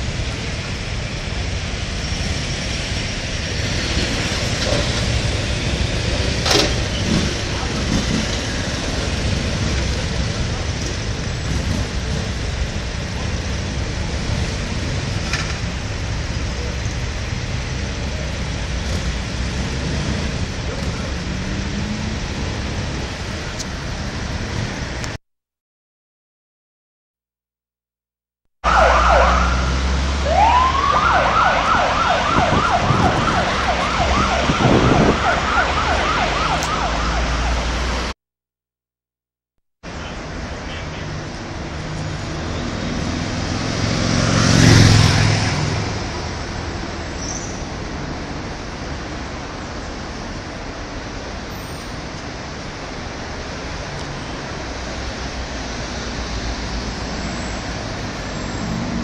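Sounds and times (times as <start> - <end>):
motorcycle engines rumbling: 0.0 - 25.1, 28.7 - 38.1
street traffic noise: 0.0 - 25.2, 28.6 - 38.2, 39.8 - 59.0
electronic siren yelping: 28.6 - 37.8.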